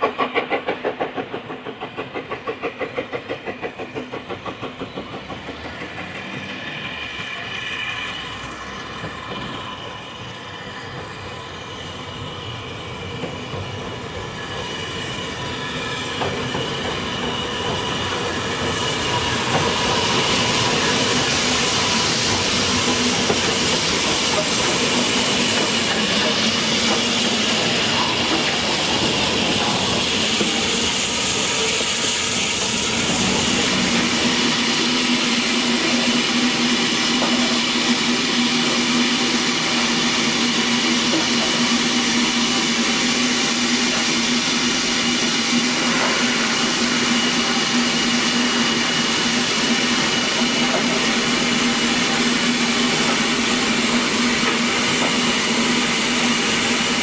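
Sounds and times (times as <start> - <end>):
steam train running past: 0.0 - 57.0.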